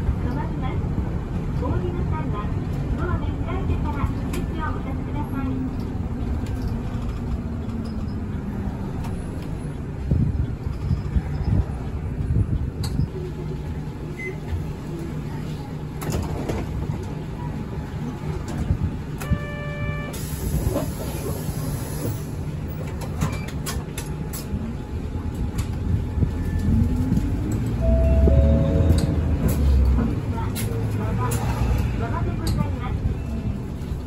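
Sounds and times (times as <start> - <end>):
bus engine hum: 0.0 - 34.0
road noise: 0.0 - 34.0
short electronic beep: 27.8 - 29.2.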